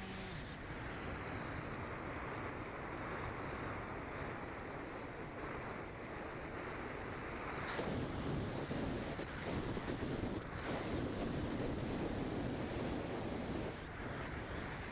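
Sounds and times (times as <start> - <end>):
airstream rushing over camera: 0.0 - 1.3.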